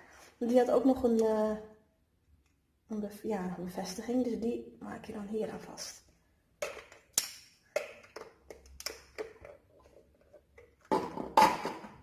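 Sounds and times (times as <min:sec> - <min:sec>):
plastic parts clicking and knocking: 0:06.6 - 0:12.0
plastic clatter: 0:07.8 - 0:12.0.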